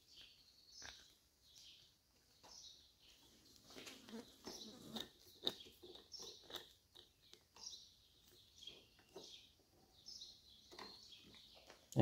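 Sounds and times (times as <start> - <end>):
faint birds chirping: 0.0 - 12.0.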